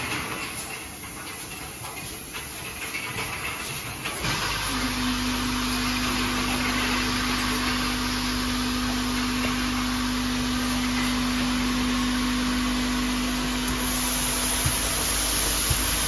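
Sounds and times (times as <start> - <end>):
bottling machine humming: 4.1 - 16.0.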